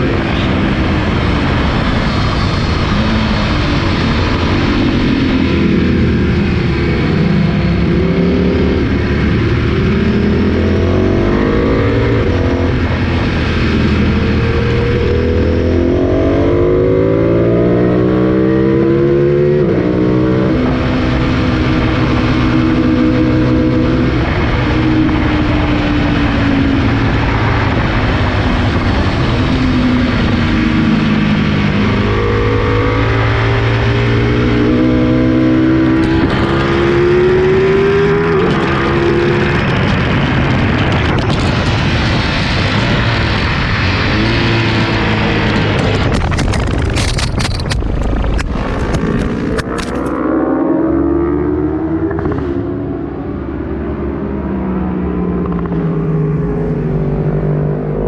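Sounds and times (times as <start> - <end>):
motorcycle engine revving: 0.0 - 58.0
wind rush: 0.0 - 58.0
camera knocking and rattling: 45.8 - 50.2.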